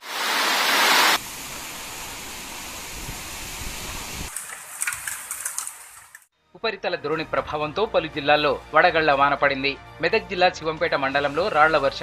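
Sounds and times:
hail ticking: 4.3 - 6.3.

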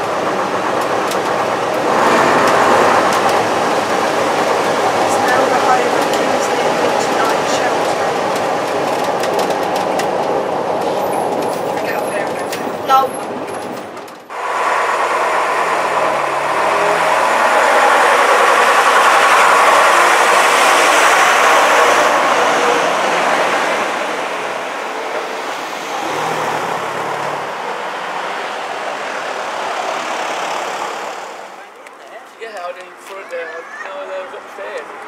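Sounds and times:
bus diesel engine passing: 0.0 - 32.1
second engine hum: 14.3 - 31.7.

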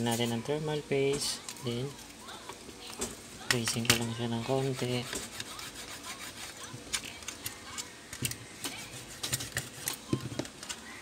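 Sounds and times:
eraser rubbing on contacts: 4.4 - 7.2, 8.6 - 10.1.

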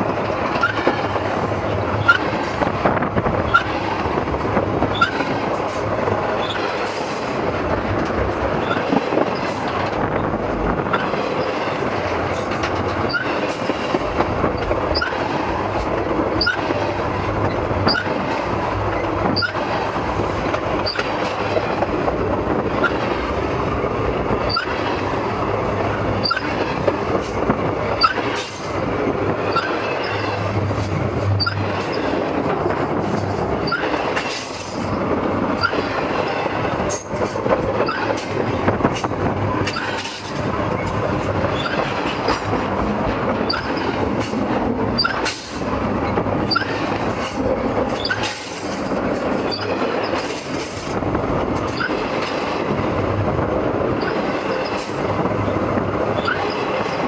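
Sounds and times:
train wheels rumbling on rails: 0.0 - 57.0
wheel clicks and squeaks: 13.0 - 13.5, 14.6 - 15.2, 16.4 - 16.7, 19.0 - 19.6, 20.8 - 21.1, 26.2 - 26.6, 31.4 - 32.1, 33.6 - 34.4, 37.8 - 38.3, 41.5 - 42.5, 43.4 - 44.0, 45.0 - 45.4, 46.4 - 46.8, 48.0 - 50.4, 51.7 - 52.0, 56.2 - 56.7.

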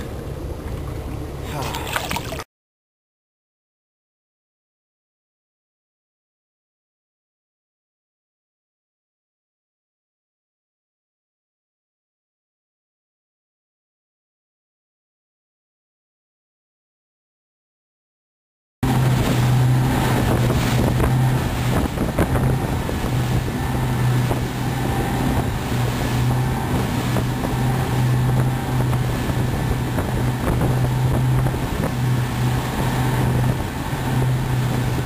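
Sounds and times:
outboard motors droning: 0.0 - 2.4, 18.8 - 35.0
water rushing from wake: 0.0 - 2.5, 18.8 - 35.0
wind buffeting microphone: 18.8 - 35.0.

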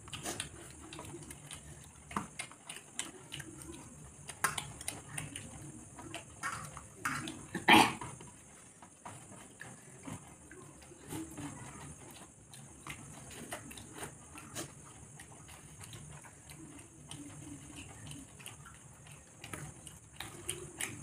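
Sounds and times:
chewing and mouth smacks: 0.0 - 21.0.

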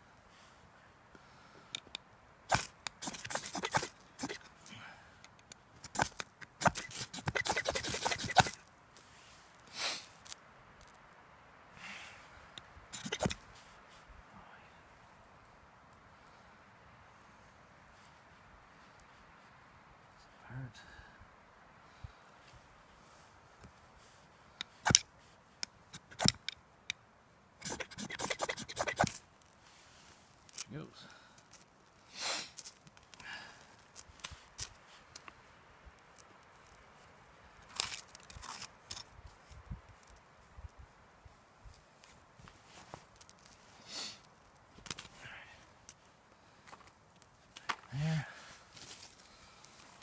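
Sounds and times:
knife scraping ferrocerium rod: 2.5 - 4.5, 5.8 - 8.6, 13.0 - 13.4, 25.9 - 26.5, 27.6 - 29.2.

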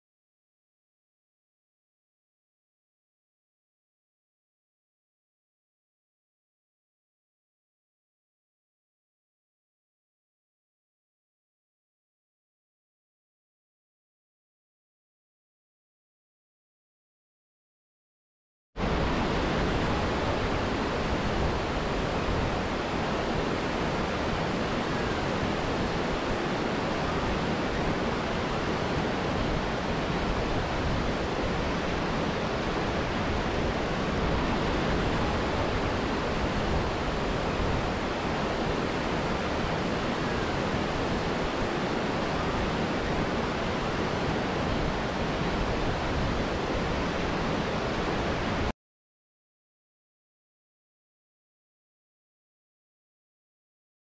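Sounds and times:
falling water rushing: 18.8 - 48.7.

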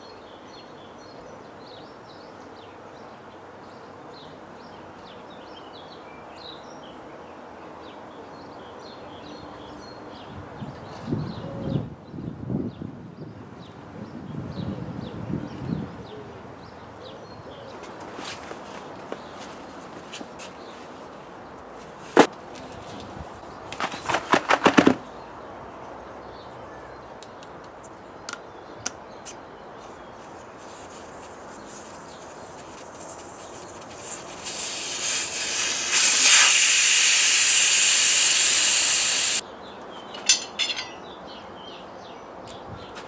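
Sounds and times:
air hissing from tyre valve: 32.7 - 39.4.

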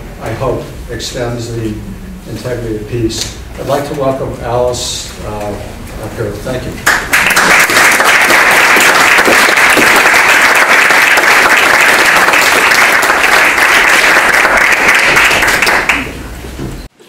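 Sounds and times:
audience applauding: 6.8 - 16.3.

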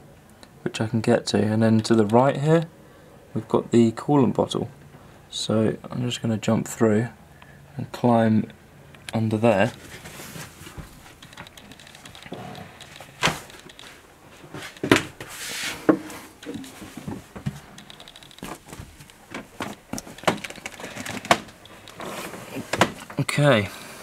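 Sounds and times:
rustling: 9.4 - 23.2.

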